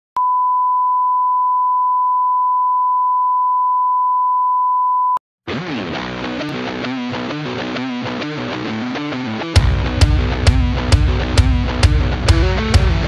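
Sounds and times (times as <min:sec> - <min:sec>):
rock music with electric guitar: 0:05.5 - 0:13.0.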